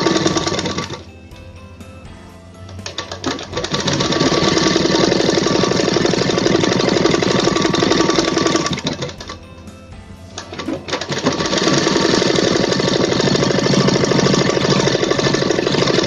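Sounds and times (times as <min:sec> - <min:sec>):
sewing machine stitching: 0:00.0 - 0:01.0, 0:02.8 - 0:09.4, 0:10.4 - 0:16.0.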